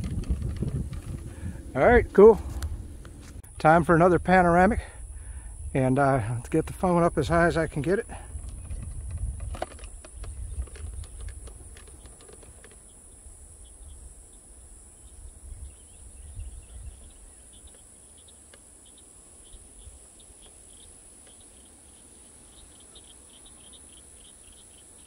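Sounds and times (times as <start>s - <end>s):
wind on microphone: 0.0s - 12.6s, 15.0s - 17.5s
insects droning: 0.0s - 25.0s.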